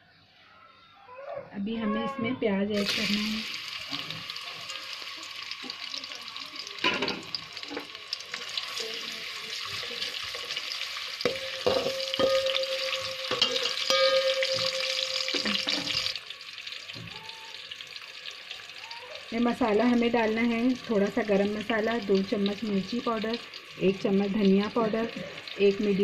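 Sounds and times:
onions sizzling in oil: 2.7s - 26.0s
spoon knocking on pot: 11.2s - 16.1s.

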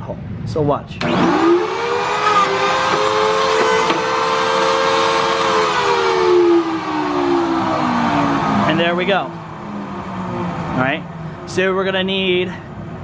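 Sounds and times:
pocket-hole machine motor whine: 1.0s - 11.3s.

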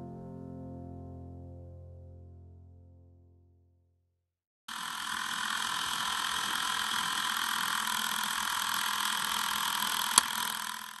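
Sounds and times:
film projector whirring: 4.7s - 11.0s
sharp click: 10.0s - 10.5s.

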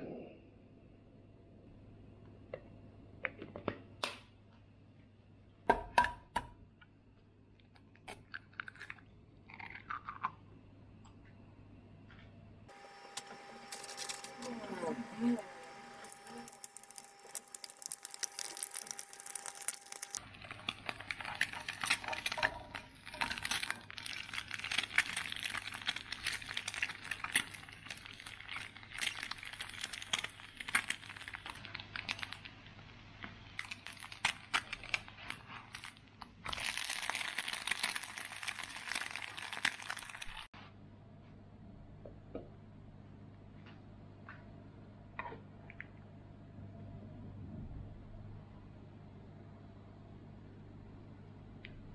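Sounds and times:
egg sizzling in frying pan: 15.3s - 40.5s.

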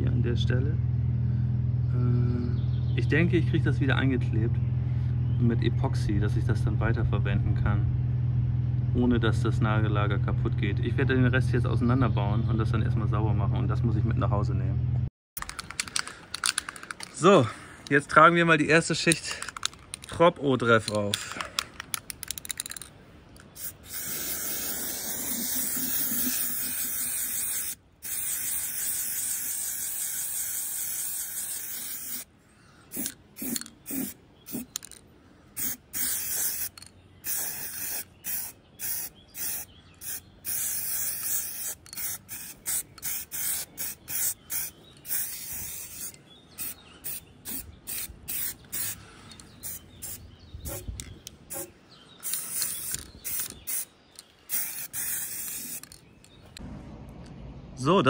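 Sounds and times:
aerosol spray can hissing: 23.5s - 32.3s, 32.9s - 34.9s, 35.6s - 50.9s, 51.5s - 53.9s, 54.5s - 56.0s.

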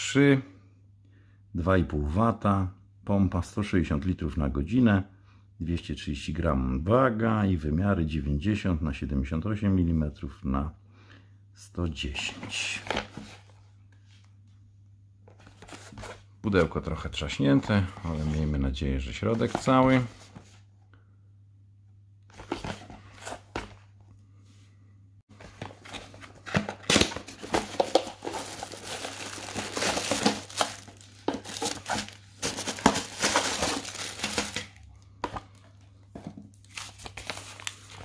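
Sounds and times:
plastic bags and cardboard crinkling: 25.3s - 38.0s.

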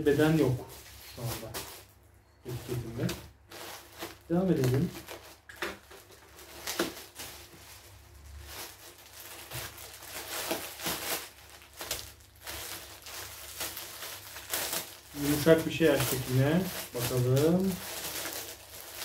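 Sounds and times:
plastic wrapping crinkling: 0.0s - 19.0s
plastic bag being torn open: 3.7s - 7.6s, 8.3s - 19.0s.

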